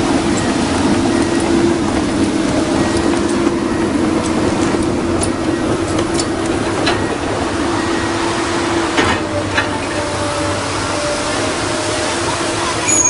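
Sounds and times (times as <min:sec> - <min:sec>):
excavator diesel engine rumbling: 0:00.0 - 0:13.0.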